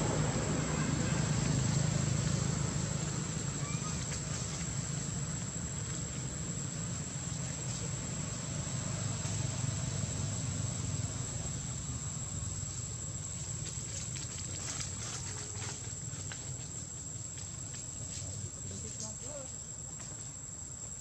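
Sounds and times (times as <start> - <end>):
continuous low rumble: 0.0 - 21.0.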